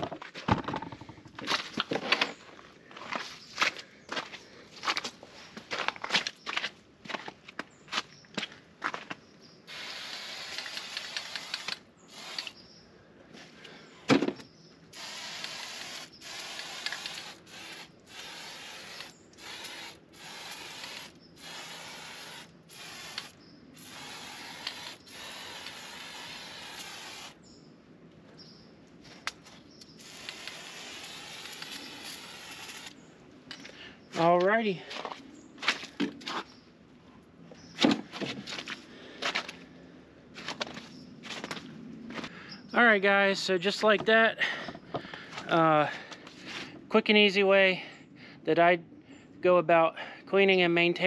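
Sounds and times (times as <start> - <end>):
aerosol can spraying: 9.7 - 12.6, 14.9 - 27.4, 30.0 - 33.0.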